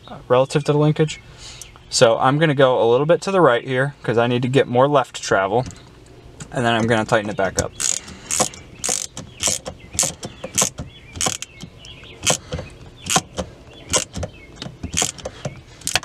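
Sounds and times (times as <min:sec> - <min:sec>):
socket ratchet clicking: 0:07.6 - 0:16.0.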